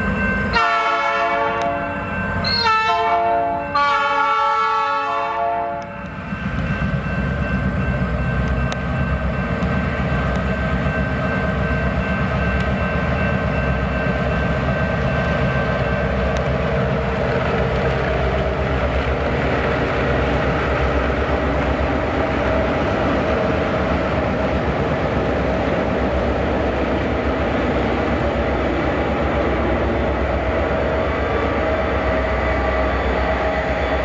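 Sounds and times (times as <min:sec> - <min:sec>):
train rumbling past: 0:00.0 - 0:34.0
train horn: 0:00.5 - 0:06.1.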